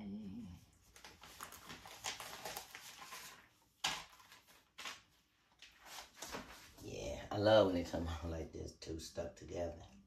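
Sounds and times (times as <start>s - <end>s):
wrappers rustling and crackling: 0.8s - 7.1s.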